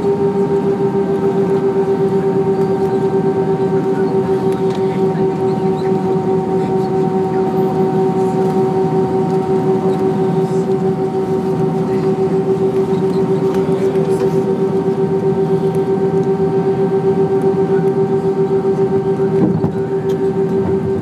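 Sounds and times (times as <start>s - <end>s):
jet engines idling hum: 0.0s - 21.0s.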